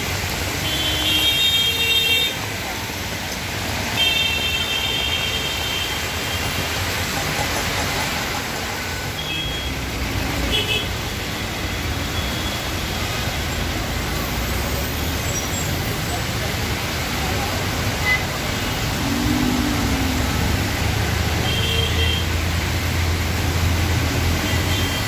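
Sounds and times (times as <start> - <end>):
heavy rain hissing: 0.0 - 25.0
wet tyres on road: 0.0 - 25.0
engines rumbling: 12.6 - 25.0.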